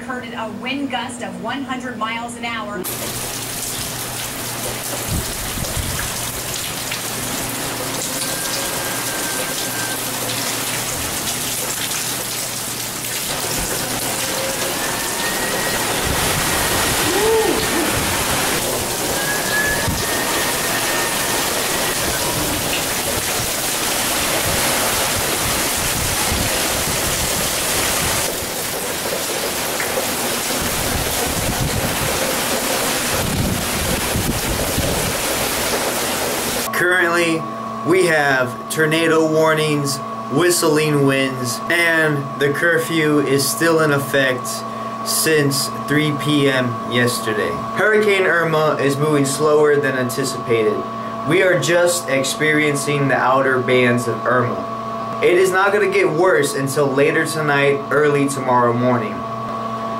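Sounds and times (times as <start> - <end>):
wind-driven rain: 2.9 - 36.7
faint high whistle: 14.4 - 16.1, 19.2 - 22.4
wind gusts: 15.7 - 19.2.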